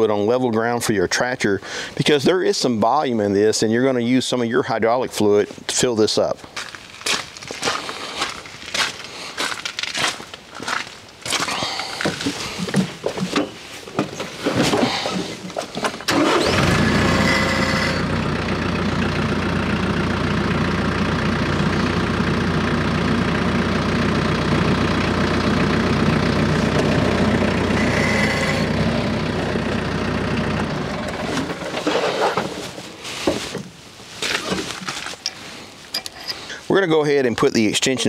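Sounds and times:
footsteps on gravel: 0:06.4 - 0:13.8
tractor diesel engine running: 0:06.5 - 0:33.0.

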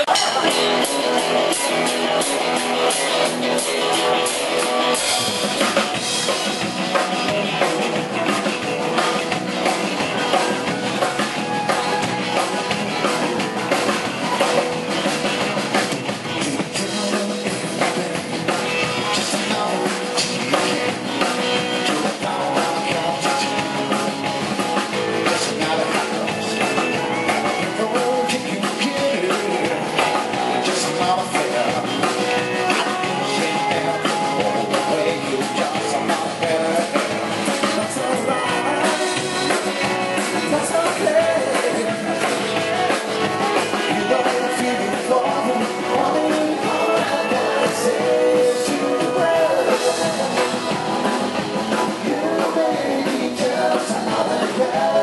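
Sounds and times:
distorted electric guitar: 0:00.0 - 0:55.0
drum kit: 0:00.0 - 0:55.0
electric bass: 0:00.0 - 0:55.0.

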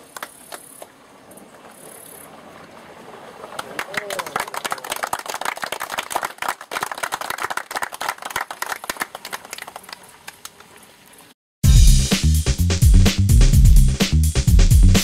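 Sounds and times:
crowd clapping: 0:00.0 - 0:00.6, 0:03.4 - 0:10.7.

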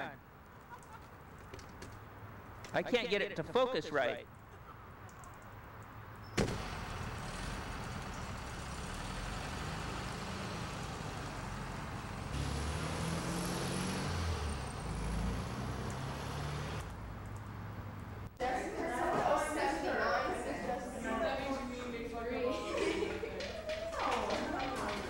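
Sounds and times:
car engine rumbling: 0:06.4 - 0:18.0.

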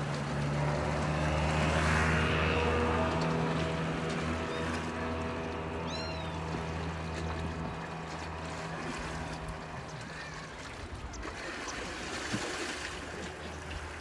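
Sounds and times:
low engine hum: 0:00.0 - 0:14.0
waves washing among concrete blocks: 0:00.0 - 0:14.0
wind: 0:00.0 - 0:14.0.

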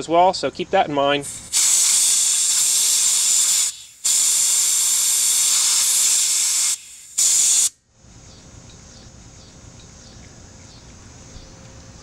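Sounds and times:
refrigerant hissing from hose: 0:01.2 - 0:07.7.

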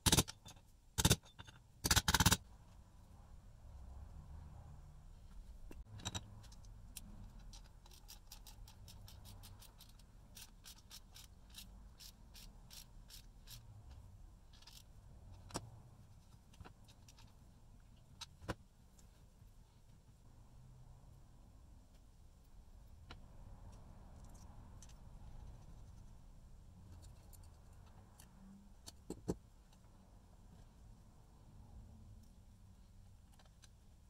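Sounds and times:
light clicks on small parts: 0:21.8 - 0:26.2, 0:26.8 - 0:30.0, 0:32.1 - 0:34.0.

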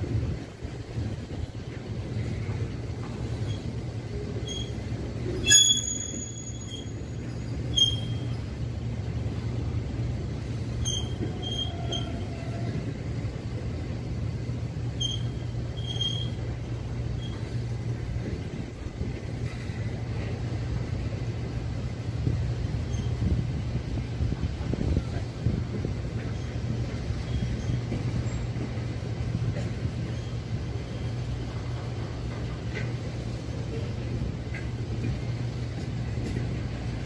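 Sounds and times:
train rumbling past: 0:00.0 - 0:37.0
high-pitched metal squeals: 0:05.4 - 0:06.9.

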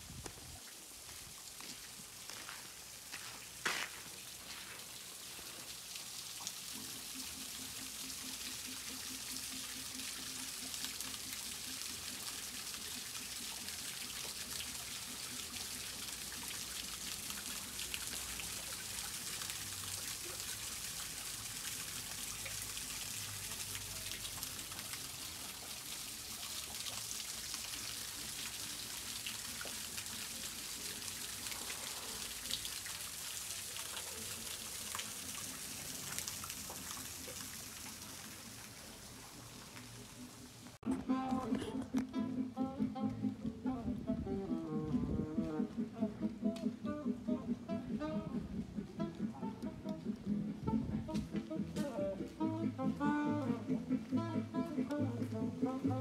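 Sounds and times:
falling rain: 0:00.0 - 0:40.8.

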